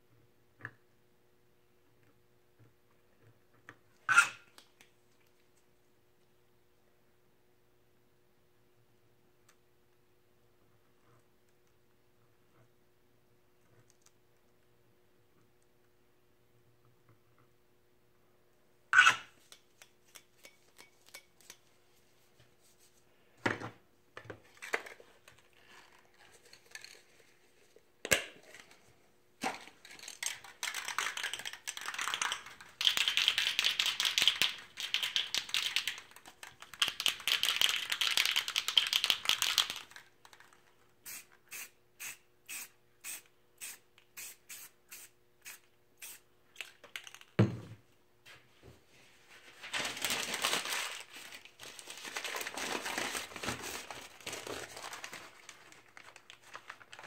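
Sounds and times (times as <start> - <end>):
spray can hissing: 41.1 - 46.2.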